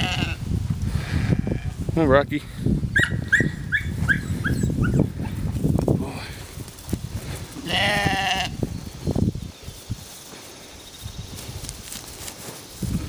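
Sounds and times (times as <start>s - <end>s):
sheep bleating: 0.0s - 0.4s, 7.6s - 8.6s
rustling: 9.2s - 13.0s.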